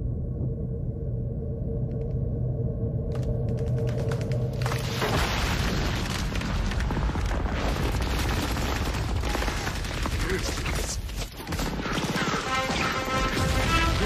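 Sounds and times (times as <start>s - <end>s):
rumble of explosions: 3.0s - 14.0s
film music: 11.7s - 14.0s.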